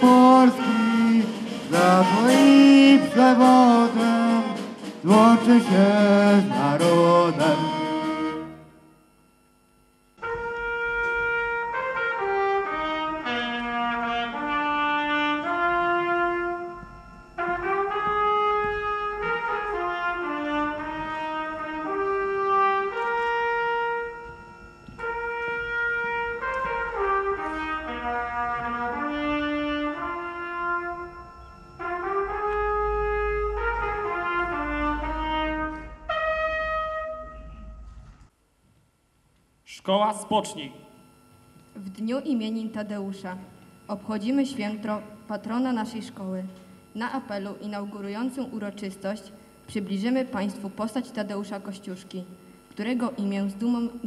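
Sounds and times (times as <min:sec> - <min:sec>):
solo brass instrument melody: 0:00.0 - 0:09.0, 0:10.2 - 0:38.1.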